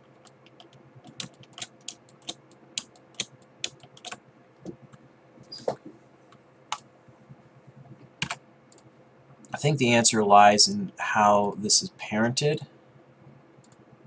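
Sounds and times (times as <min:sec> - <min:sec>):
keyboard and mouse clicks: 0:00.0 - 0:05.9, 0:07.8 - 0:08.9
faint steady hum: 0:00.0 - 0:14.0.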